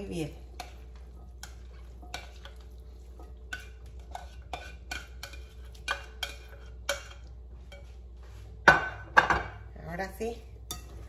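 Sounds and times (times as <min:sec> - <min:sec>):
utensil scraping a ceramic dish: 0:03.3 - 0:07.8.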